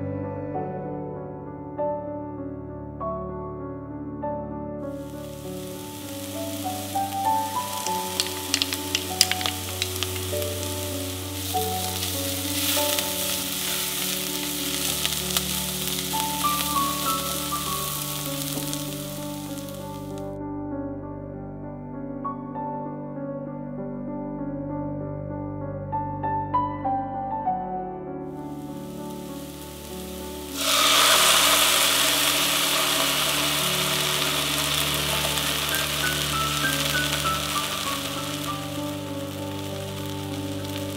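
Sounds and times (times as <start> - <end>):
soft background music: 0.0 - 40.9
vegetables sizzling in oil: 5.0 - 20.2, 28.6 - 40.9.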